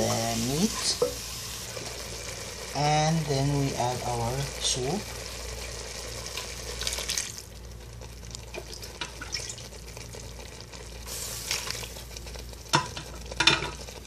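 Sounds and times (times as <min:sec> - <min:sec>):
onions sizzling in a pan: 0:00.0 - 0:14.0.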